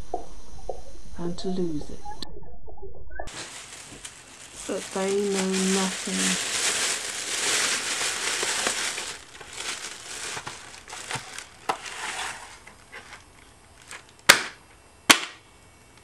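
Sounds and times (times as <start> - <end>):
plastic bag rustling: 3.3 - 14.4
packaging crinkling and clicks: 3.3 - 15.3
loud sharp snaps: 14.2 - 15.4.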